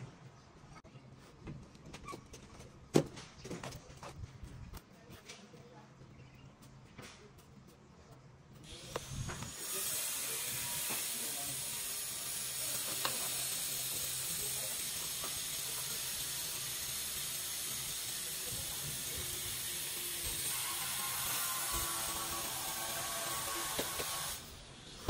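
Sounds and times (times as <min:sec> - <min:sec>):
steady hiss: 0:08.6 - 0:25.0.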